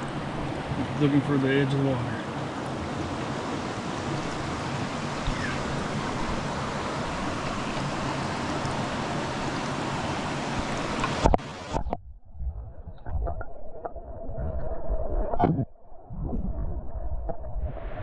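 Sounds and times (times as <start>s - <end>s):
mountain stream rushing: 0.0s - 11.9s.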